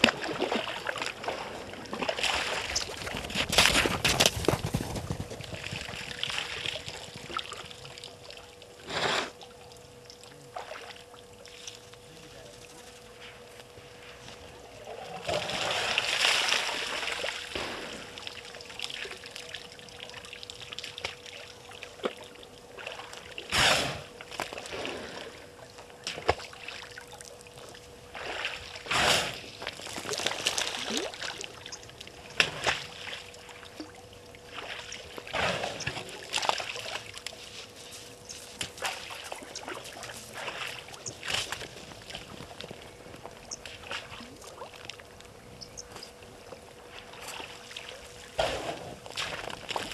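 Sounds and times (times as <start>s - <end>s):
faint steady hum: 0.0s - 49.9s
elephant splashing water: 15.0s - 19.5s, 34.4s - 37.4s, 38.5s - 42.8s.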